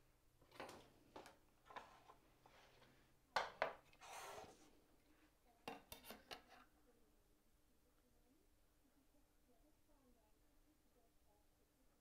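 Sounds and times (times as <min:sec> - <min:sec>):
wooden pieces knocking on workbench: 0:03.4 - 0:03.9
scraping slide on workbench: 0:03.9 - 0:04.7.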